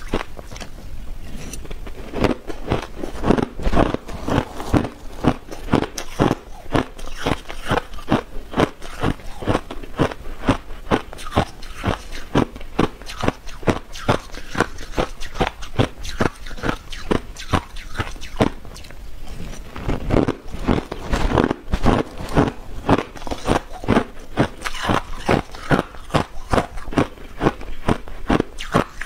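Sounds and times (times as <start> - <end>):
ice being chewed: 0.0 - 29.0.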